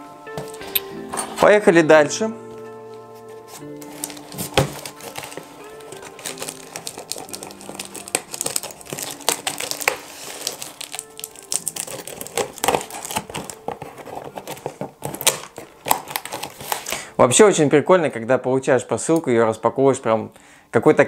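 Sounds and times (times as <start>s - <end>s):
background music: 0.0s - 21.0s
packing tape tearing off cardboard: 3.2s - 17.2s.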